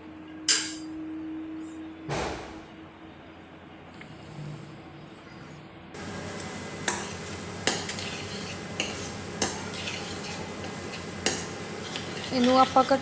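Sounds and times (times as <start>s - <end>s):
paste sizzling in a pan: 6.3s - 13.0s.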